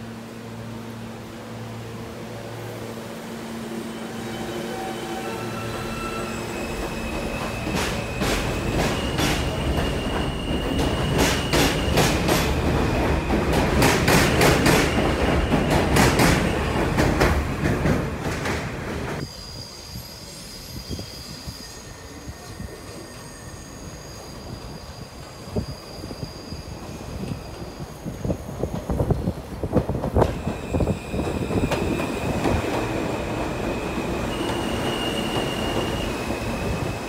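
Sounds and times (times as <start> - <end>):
train high whine: 0.0 - 29.5, 30.4 - 37.0
distant wheel squeal: 3.8 - 12.0, 33.7 - 37.0
train wheels clattering: 6.6 - 19.2.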